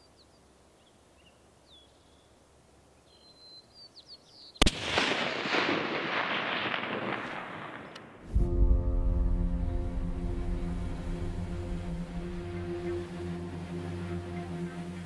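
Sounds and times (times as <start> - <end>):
faint bird chirps: 0.0 - 4.6
rifle shot with echo: 4.6 - 8.3.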